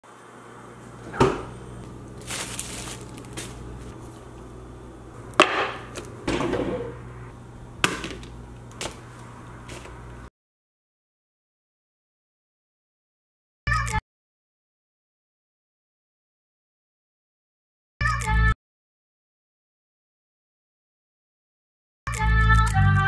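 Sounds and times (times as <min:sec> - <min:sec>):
steady low hum: 0:00.1 - 0:10.3
refrigerator door opening: 0:01.0 - 0:01.6, 0:05.6 - 0:07.0
jars set down on countertop: 0:01.1 - 0:01.5, 0:05.4 - 0:07.0, 0:07.8 - 0:08.3
rustling: 0:02.1 - 0:04.4.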